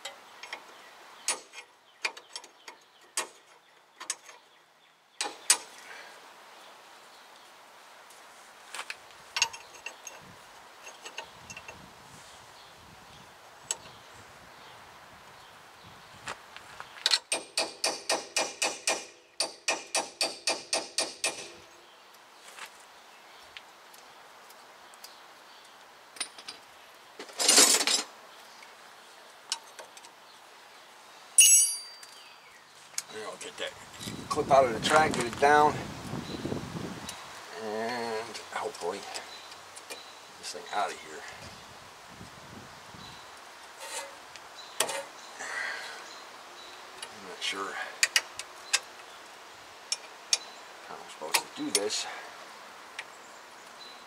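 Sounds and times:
small metal clicks: 0:08.9 - 0:10.2, 0:10.8 - 0:11.8, 0:49.9 - 0:50.5
ringing metallic clink: 0:31.4 - 0:32.2
metal scrape: 0:43.8 - 0:44.2.

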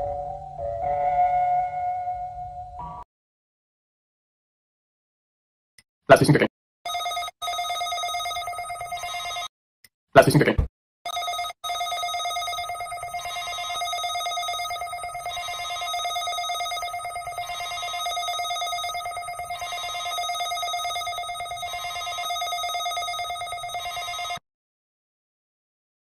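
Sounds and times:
electronic alarm tone: 0:11.1 - 0:24.4.

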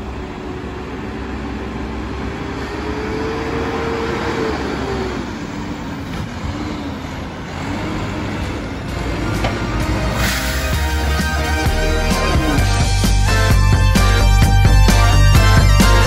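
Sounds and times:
garbage truck engine driving: 0:00.0 - 0:16.0.

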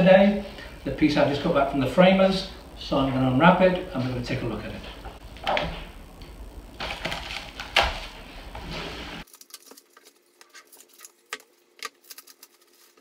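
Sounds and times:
plastic wrapping crinkling: 0:06.8 - 0:13.0.

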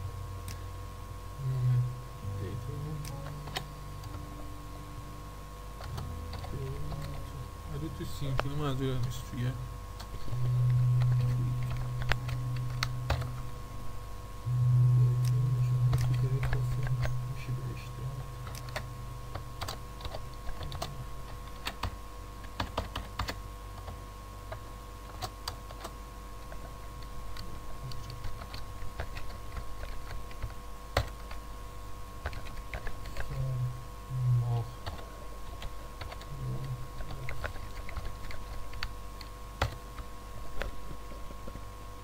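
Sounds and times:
faint electrical hum: 0:00.0 - 0:42.0
keyboard typing clicks: 0:05.8 - 0:07.2, 0:10.0 - 0:13.4, 0:15.2 - 0:17.2, 0:18.4 - 0:25.9, 0:26.5 - 0:31.4, 0:32.2 - 0:33.4, 0:37.0 - 0:39.8.

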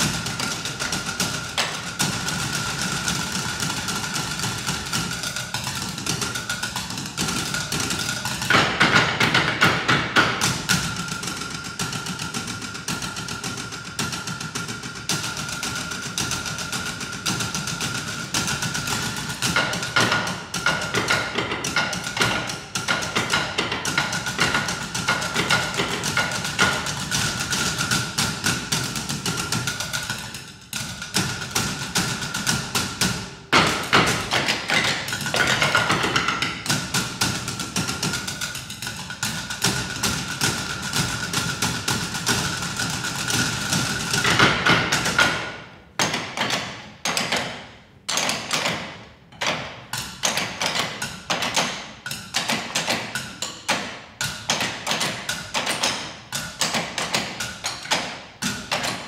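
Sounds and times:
drumming on wooden stools: 0:00.0 - 0:59.0.

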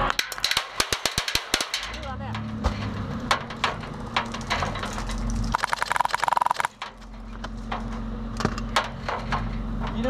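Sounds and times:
vehicle engine humming: 0:01.8 - 0:10.0
buzzing rapid rattle: 0:04.0 - 0:07.0.

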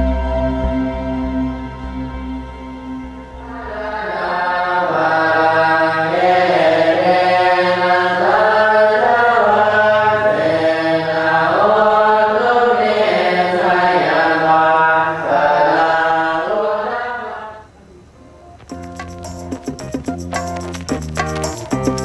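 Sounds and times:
group chanting in unison: 0:03.5 - 0:17.7.

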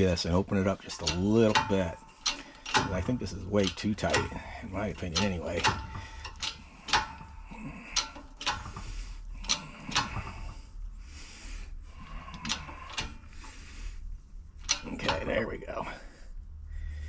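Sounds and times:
sharp metallic clicks: 0:00.0 - 0:10.7, 0:12.0 - 0:13.9, 0:14.5 - 0:15.5
low steady hum: 0:00.0 - 0:17.0.

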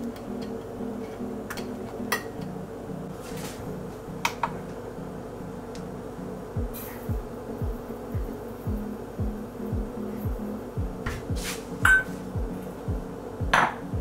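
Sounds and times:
soft synth pattern: 0:04.8 - 0:14.0
deep kick drum beats: 0:06.6 - 0:14.0.

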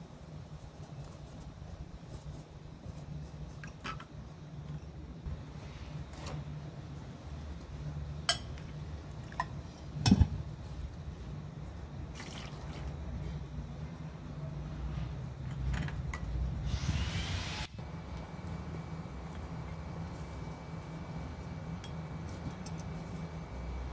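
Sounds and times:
steady low hum: 0:00.0 - 0:23.9
water pouring over onions in strainer: 0:12.2 - 0:12.9.

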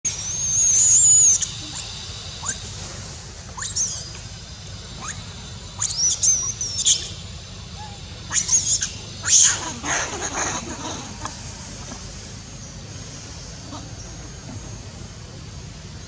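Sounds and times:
young monkey screaming: 0:00.1 - 0:02.6, 0:03.6 - 0:04.2, 0:05.0 - 0:07.2, 0:07.8 - 0:11.4.

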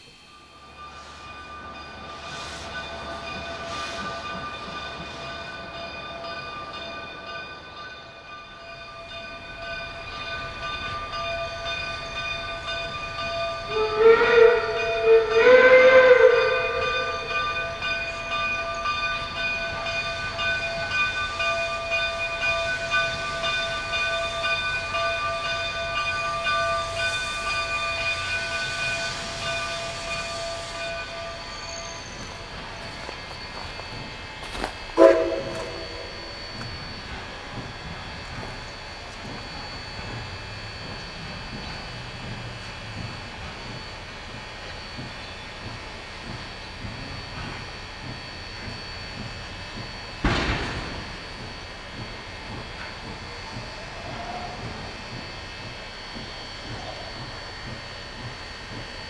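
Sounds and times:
faint locomotive chuffing: 0:00.0 - 0:59.0
steam locomotive chime whistle: 0:00.0 - 0:59.0
steady high whine: 0:16.4 - 0:59.0.

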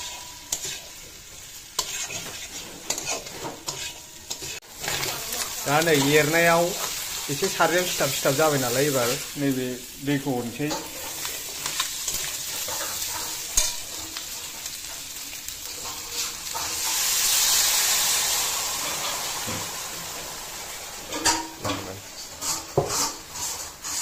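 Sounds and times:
spatula scraping pan: 0:00.0 - 0:09.3, 0:10.6 - 0:17.7, 0:21.1 - 0:24.0
spatula stirring: 0:00.0 - 0:09.3, 0:10.6 - 0:17.0, 0:22.2 - 0:24.0
food sizzling in oil: 0:00.0 - 0:24.0.

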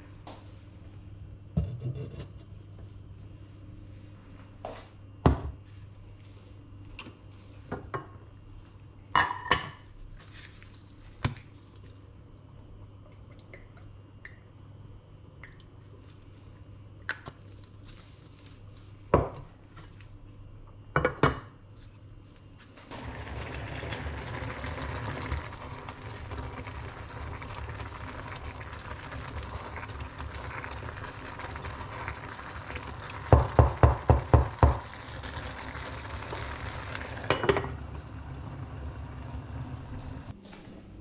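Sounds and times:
steady low hum: 0:34.5 - 0:41.0.

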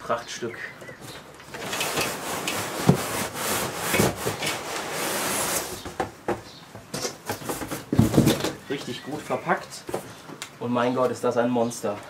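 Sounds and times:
cardboard scraping and rubbing: 0:01.6 - 0:06.0, 0:06.9 - 0:08.6
thumps: 0:05.8 - 0:08.6.

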